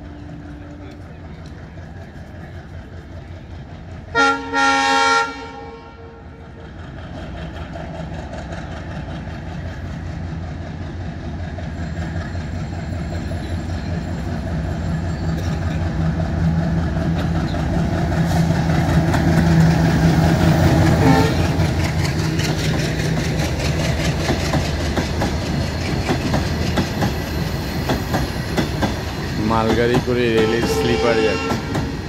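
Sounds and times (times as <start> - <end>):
diesel locomotive engine hum: 0.0 - 32.0
wheels clattering over rail joints: 10.8 - 30.8.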